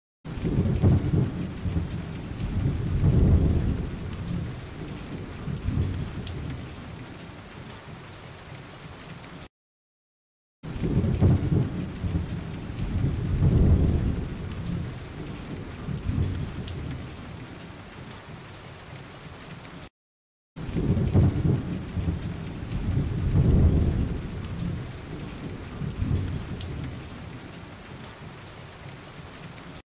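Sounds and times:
rolling thunder rumbles: 0.3s - 7.1s, 10.7s - 17.5s, 20.6s - 27.8s
steady rain: 0.3s - 9.5s, 10.6s - 19.9s, 20.6s - 29.8s.

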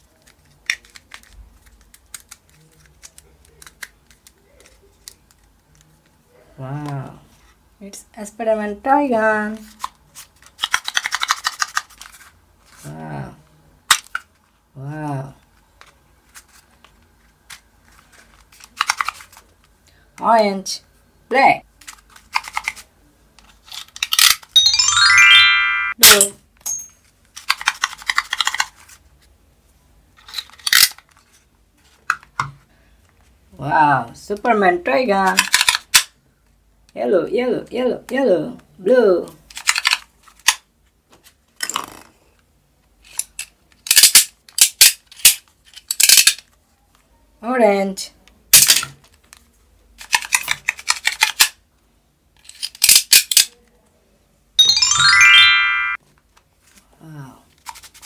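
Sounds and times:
synthesized chime run: 24.6s - 26.0s, 54.6s - 56.0s
sharp plastic clacks: 35.3s - 36.1s, 50.0s - 51.6s
toy dart gun plastic clicks: 35.4s - 36.1s, 43.8s - 46.4s, 50.1s - 51.6s, 52.6s - 53.6s.

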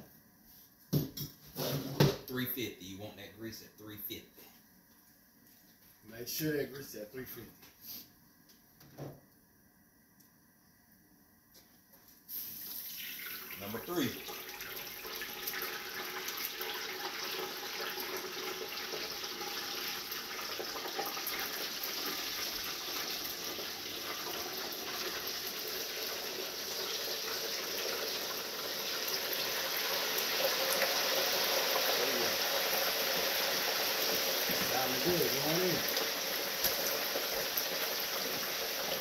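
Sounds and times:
frying oil bubbling and sizzling: 12.3s - 39.0s.

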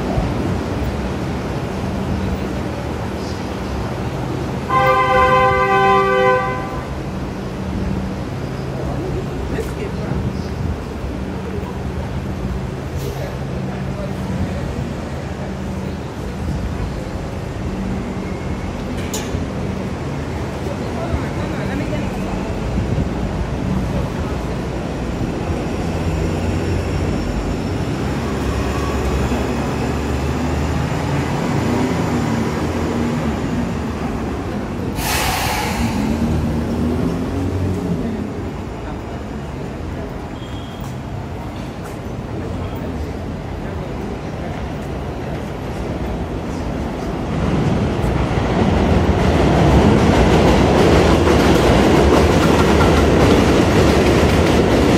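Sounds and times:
elevated train rumbling: 0.0s - 54.9s
loud hiss: 34.9s - 36.5s.

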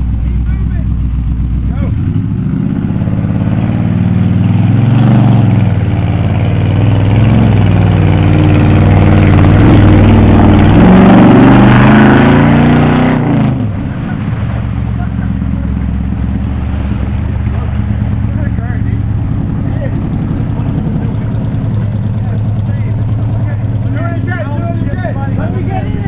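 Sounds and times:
tyres churning through mud and water: 0.0s - 26.0s
truck engine revving hard: 1.6s - 26.0s.

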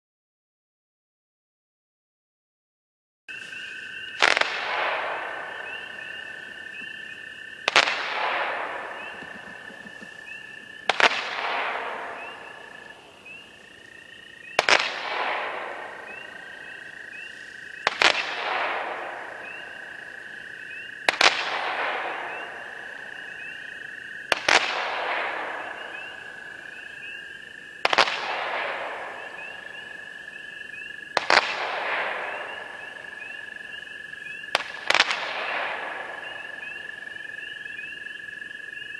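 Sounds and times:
firework bangs: 4.1s - 13.9s, 14.6s - 27.0s, 27.8s - 30.1s, 31.1s - 33.5s, 34.5s - 36.8s.

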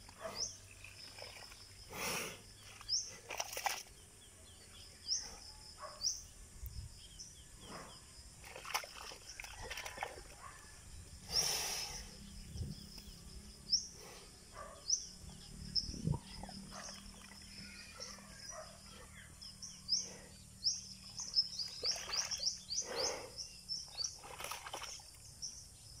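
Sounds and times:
small birds chirping: 0.0s - 26.0s
mud sloshing and splashing: 0.8s - 1.8s, 2.6s - 4.1s, 8.4s - 10.4s, 21.0s - 22.7s, 24.0s - 25.4s.

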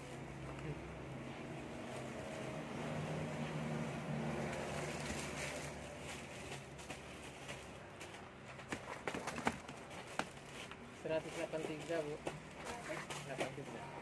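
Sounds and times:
plastic packaging rustling: 4.3s - 13.9s.

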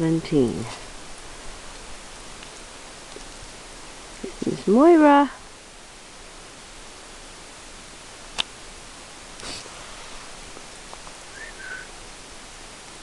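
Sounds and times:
steady hiss: 0.0s - 13.0s
faint short chirp: 11.3s - 11.9s.

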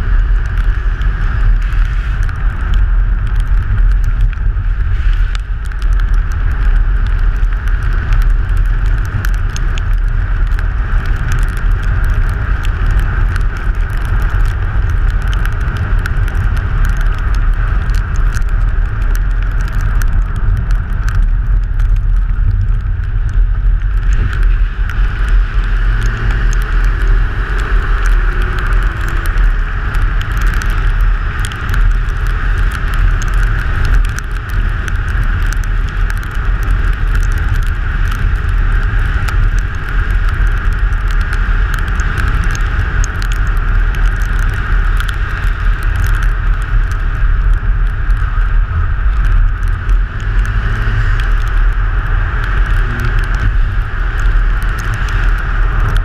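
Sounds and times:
road noise with small ticks: 0.0s - 56.0s
wind rumble on microphone: 0.0s - 56.0s
car engine: 21.4s - 35.5s.

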